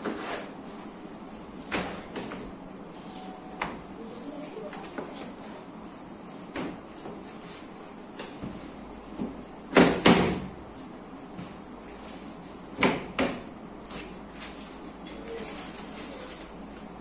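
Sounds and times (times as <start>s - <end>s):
sharp knocks on bookcase panels: 9.2s - 10.5s.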